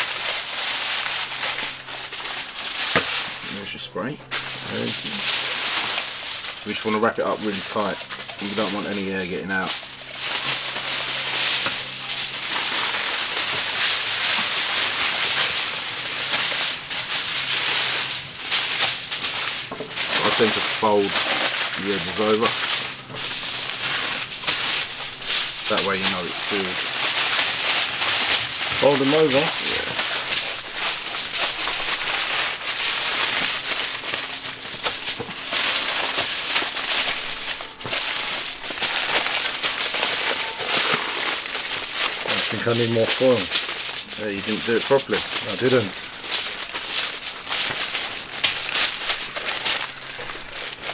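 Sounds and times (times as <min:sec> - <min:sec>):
kitchen foil crinkling: 0:00.0 - 0:50.9.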